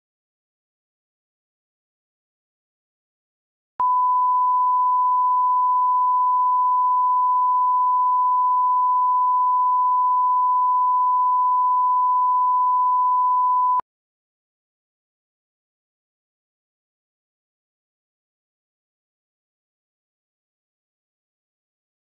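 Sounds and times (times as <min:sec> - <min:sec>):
steady test tone beep: 0:03.8 - 0:13.8.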